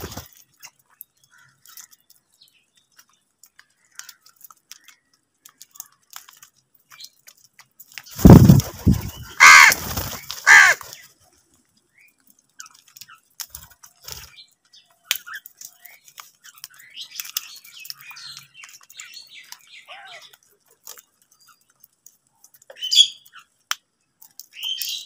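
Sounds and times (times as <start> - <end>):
crows cawing: 8.4 - 11.0.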